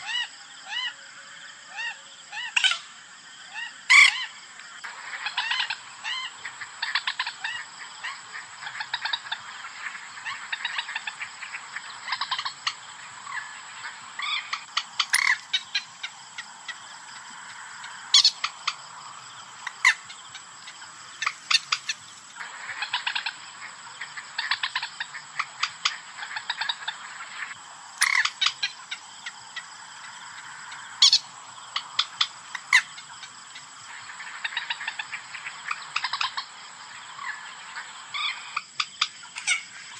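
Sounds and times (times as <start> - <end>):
moorhen clucking and croaking: 0.0 - 2.9, 3.5 - 39.9
moorhen sharp call: 10.2 - 23.4, 28.0 - 33.7.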